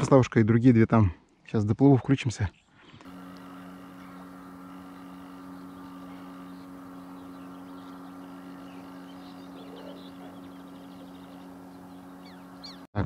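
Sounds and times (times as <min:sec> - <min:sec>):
small boat motor humming: 0:02.9 - 0:13.0.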